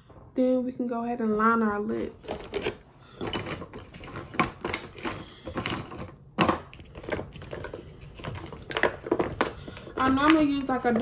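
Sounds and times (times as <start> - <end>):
small items clicking and clattering: 2.2 - 11.0.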